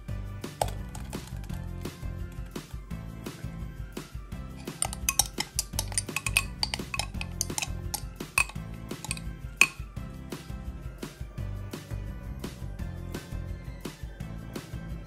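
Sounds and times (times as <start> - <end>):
background music: 0.0 - 15.0
spoon clinking against glass bowls: 0.6 - 1.6, 4.6 - 9.8.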